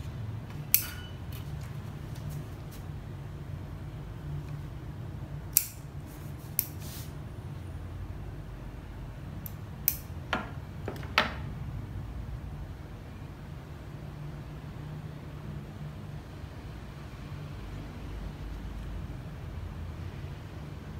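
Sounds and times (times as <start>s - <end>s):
metal scissors snipping: 0.7s - 1.1s, 5.5s - 5.9s, 9.4s - 10.1s.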